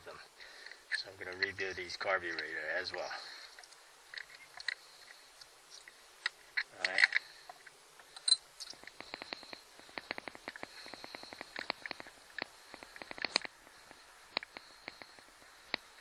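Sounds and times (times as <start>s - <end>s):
metallic clicks and taps: 8.2s - 13.5s.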